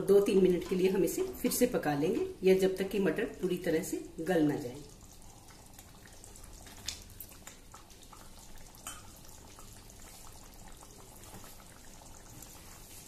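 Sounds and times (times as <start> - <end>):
gravy bubbling: 0.0 - 13.0.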